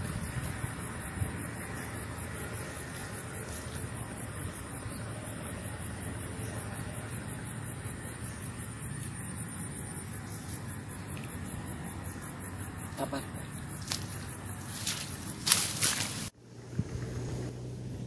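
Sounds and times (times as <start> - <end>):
insects chirring: 0.0 - 18.0.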